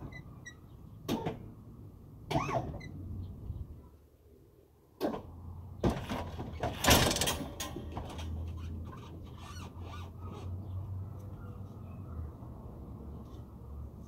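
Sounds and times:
hissing and squeaking creaks: 8.2 - 10.6.

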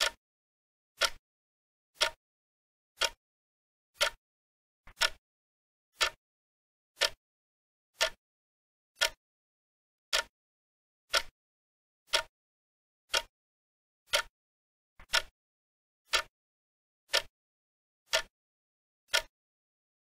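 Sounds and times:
clock ticking: 0.0 - 0.2, 1.0 - 1.2, 2.0 - 2.2, 3.0 - 3.2, 4.0 - 4.2, 4.9 - 5.2, 6.0 - 6.2, 7.0 - 7.2, 8.0 - 8.2, 9.0 - 9.2, 10.1 - 10.3, 11.1 - 11.3, 12.1 - 12.3, 13.1 - 13.3, 14.1 - 14.3, 15.0 - 15.3, 16.1 - 16.3, 17.1 - 17.3, 18.1 - 18.3, 19.1 - 19.3.

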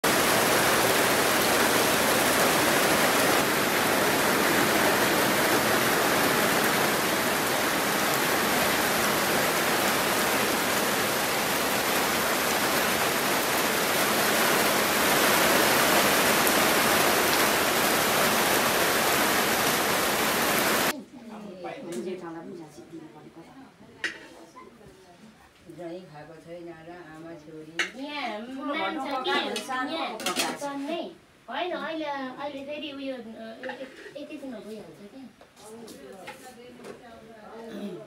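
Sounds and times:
heavy rain falling: 0.0 - 20.9
runoff pouring onto ground: 0.0 - 20.9.

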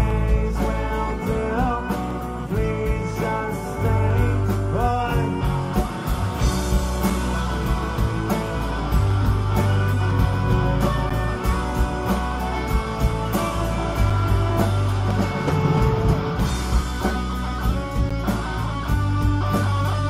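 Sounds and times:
bass guitar: 0.0 - 20.0
drums with steady beat: 0.0 - 20.0
electric guitars: 0.0 - 20.0.

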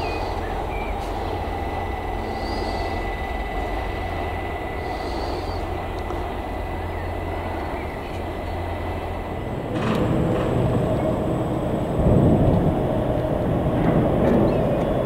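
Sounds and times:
diesel locomotive engine rumble: 0.0 - 15.0.

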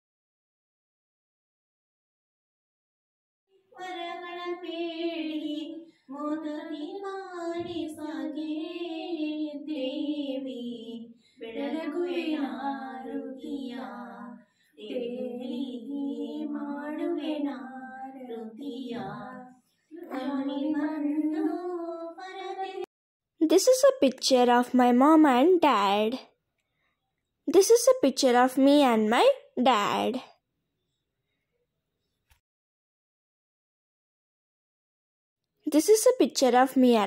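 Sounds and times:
women singing unaccompanied: 3.7 - 22.9.

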